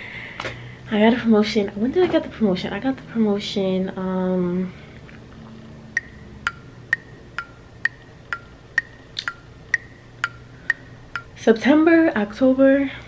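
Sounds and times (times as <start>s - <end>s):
clock ticking: 6.0s - 11.4s.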